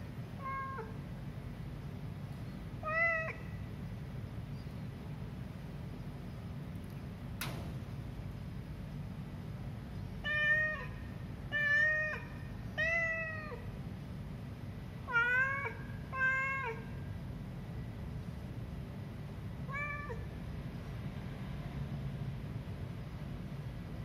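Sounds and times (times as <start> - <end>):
steady low hum: 0.0 - 24.0
cat meowing: 0.4 - 1.0, 2.8 - 3.6, 10.2 - 13.7, 15.0 - 17.0, 19.6 - 20.3
sharp click: 7.4 - 7.8.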